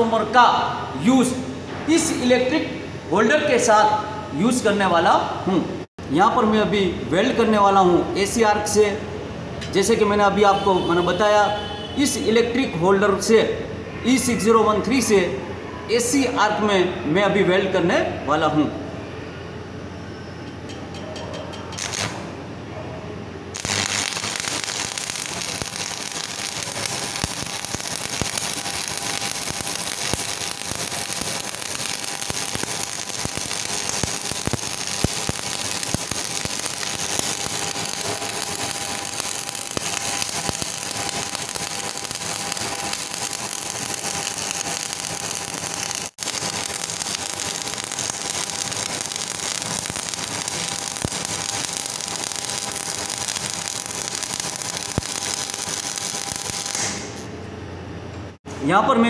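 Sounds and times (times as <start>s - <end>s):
welding arc crackling hiss: 21.8s - 22.3s, 23.5s - 57.3s.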